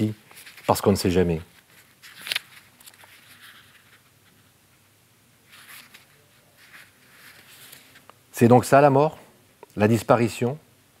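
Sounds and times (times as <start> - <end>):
book rustling in hands: 0.0 - 8.2.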